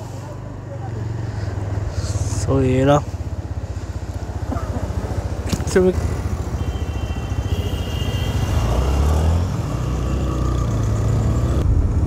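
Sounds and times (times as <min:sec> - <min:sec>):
motorcycle engine running: 0:00.0 - 0:12.0
wind noise on microphone: 0:11.6 - 0:12.0.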